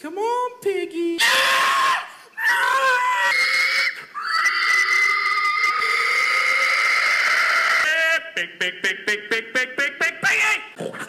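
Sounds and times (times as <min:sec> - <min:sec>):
man imitating pig squeals: 0:01.2 - 0:08.4, 0:10.0 - 0:11.0.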